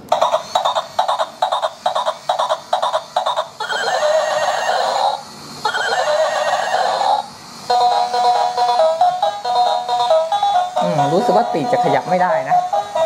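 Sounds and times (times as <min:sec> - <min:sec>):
toy horse whinny: 0:00.1 - 0:07.3
toy hoofbeat clip-clops: 0:00.1 - 0:13.0.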